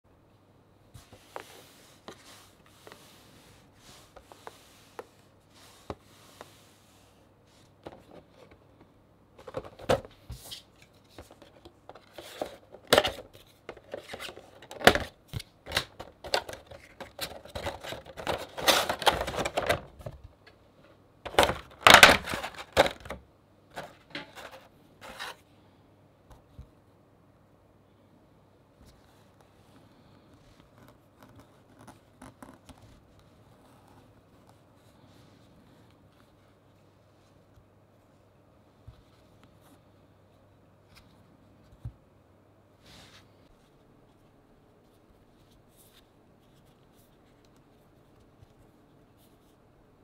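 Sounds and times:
crinkly packaging rustling: 0:09.4 - 0:20.2, 0:21.3 - 0:25.4.

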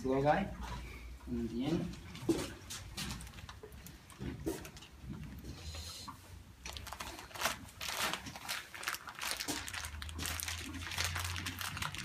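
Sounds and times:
plastic bag crinkling: 0:06.6 - 0:12.0.

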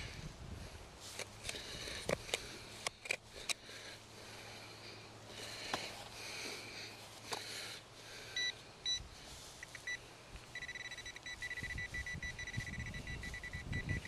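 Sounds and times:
soil and grass rustling: 0:00.0 - 0:14.0
high-pitched detector beeps: 0:08.4 - 0:09.0, 0:09.6 - 0:14.0.

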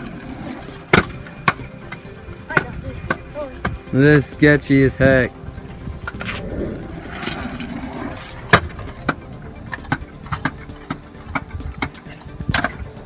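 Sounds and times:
scooter wheels rolling on asphalt: 0:00.0 - 0:05.0, 0:06.9 - 0:13.0
scooter deck rattling: 0:07.1 - 0:12.9.

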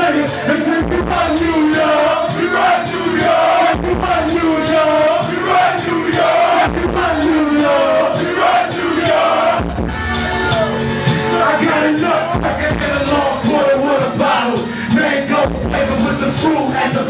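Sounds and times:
crowd yelling: 0:00.0 - 0:12.4
loud backing beat: 0:00.0 - 0:17.0
rapper shouting into microphone: 0:11.3 - 0:17.0.

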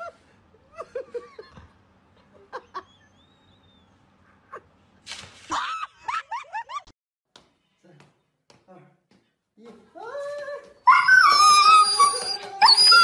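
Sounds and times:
dog whimpering yelps: 0:10.9 - 0:13.0.

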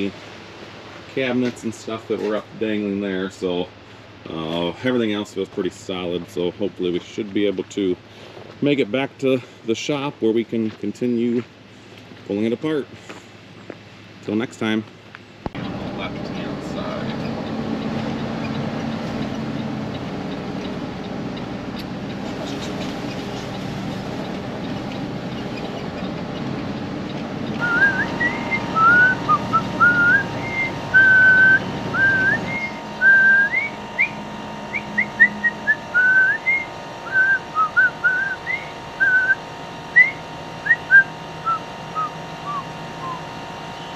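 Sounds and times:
truck engine rumble: 0:00.0 - 0:43.9
whistled tune background music: 0:27.6 - 0:39.4.

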